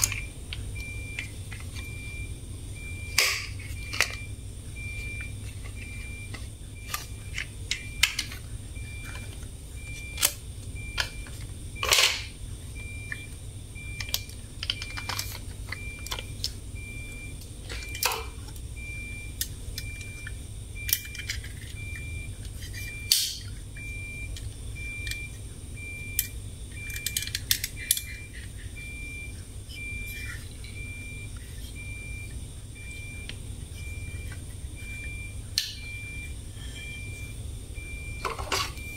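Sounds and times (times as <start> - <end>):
plastic toy parts clicking: 26.9 - 28.2.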